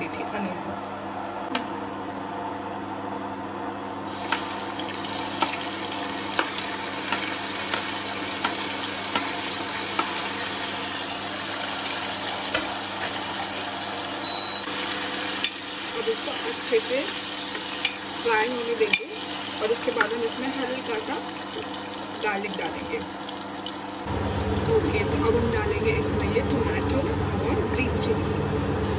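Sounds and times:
onions sizzling in hot oil: 3.9s - 25.8s.

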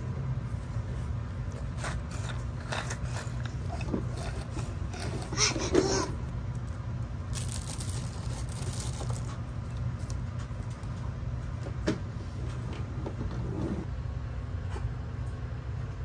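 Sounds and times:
low background hum: 0.0s - 16.0s
plastic packaging rustling: 7.3s - 10.2s.

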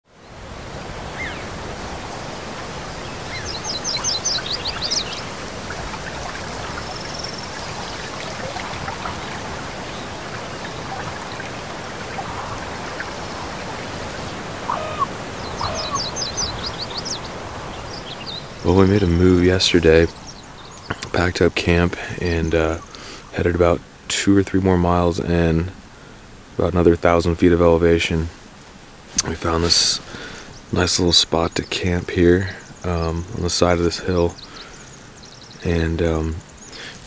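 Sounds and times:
mountain stream rushing: 0.1s - 31.6s
short low bird calls: 1.0s - 21.4s
songbird falling notes: 1.1s - 21.2s.

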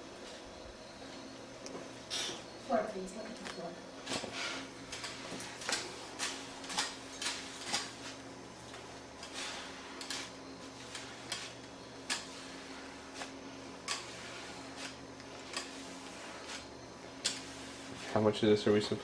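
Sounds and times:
steady low hum: 0.0s - 19.0s
floor scraper scraping tile floor: 6.2s - 18.3s.

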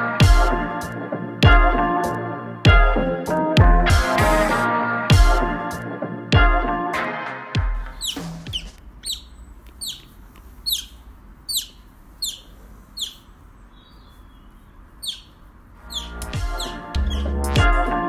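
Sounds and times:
music: 0.0s - 8.8s, 15.8s - 18.0s
otter chirping: 7.8s - 18.0s.

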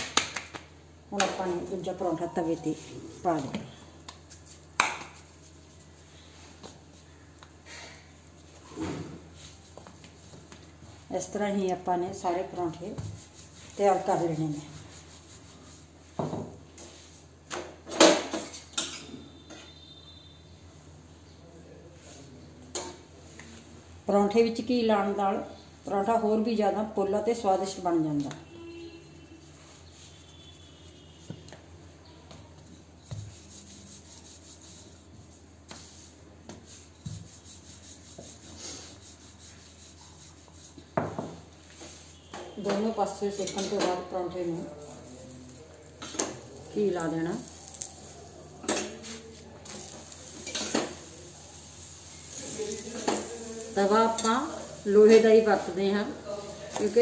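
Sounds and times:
dough rubbing on countertop: 2.7s - 7.3s, 8.4s - 17.4s, 29.2s - 31.7s, 32.5s - 57.0s.

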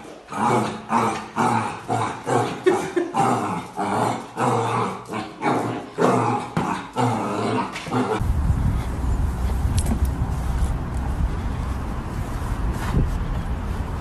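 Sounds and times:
steady low rumble: 8.2s - 14.0s.

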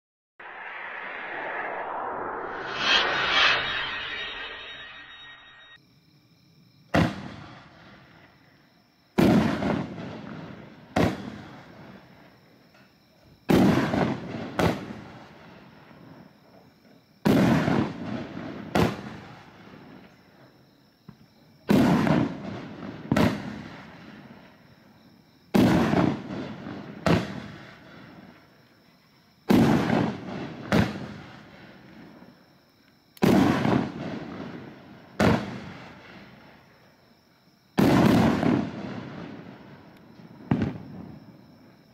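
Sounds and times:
firework bangs with echo: 7.0s - 7.6s, 9.2s - 11.4s, 21.7s - 23.6s, 25.6s - 27.7s, 29.5s - 31.3s, 33.2s - 36.0s, 37.8s - 39.6s, 40.4s - 41.2s.

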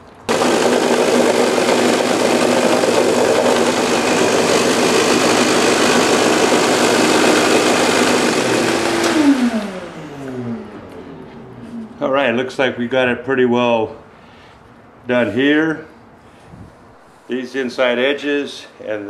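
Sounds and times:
belt sander motor hum: 0.3s - 12.0s
wood sanding hiss: 0.4s - 9.6s.

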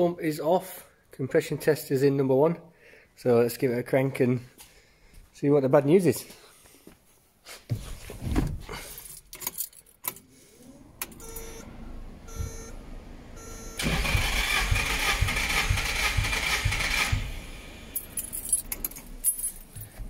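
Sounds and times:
engine cranking without firing: 10.6s - 19.2s
short beeps: 11.2s - 11.7s, 12.3s - 12.8s, 13.4s - 13.8s.

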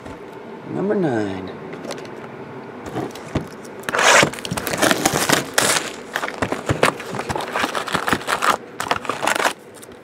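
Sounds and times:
cardboard box opening: 2.9s - 9.9s
plastic wrap tearing and crinkling: 2.9s - 10.0s.

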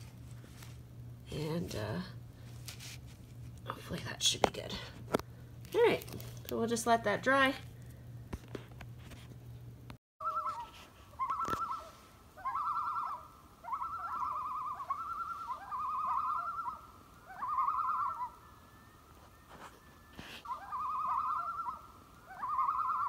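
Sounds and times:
bird warbling call: 10.2s - 23.0s.

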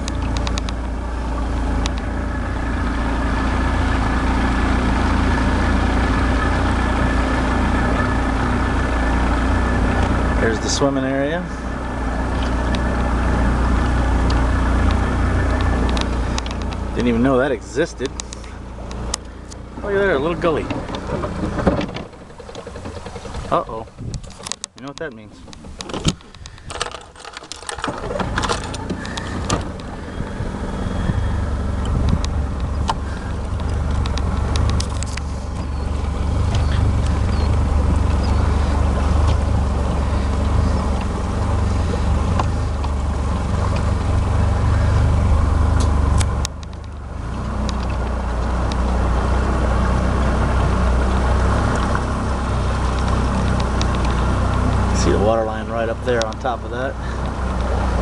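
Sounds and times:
scattered clicks: 0.0s - 0.8s, 1.8s - 2.1s, 14.2s - 17.1s, 18.0s - 19.6s, 24.1s - 29.9s, 31.8s - 39.5s, 45.7s - 49.0s, 52.8s - 57.8s
boat motor droning: 0.0s - 58.0s
water and wind hiss: 0.0s - 58.0s.

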